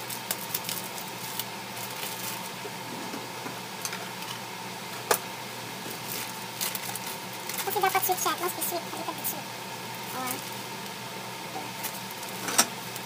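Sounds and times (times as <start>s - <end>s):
plastic packaging crinkling: 0.0s - 2.6s, 5.9s - 8.5s, 11.8s - 13.0s.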